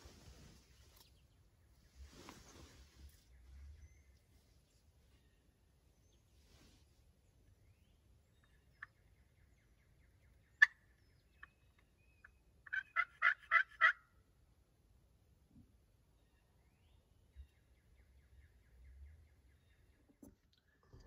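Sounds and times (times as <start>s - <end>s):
turkey calls: 8.4s - 14.2s.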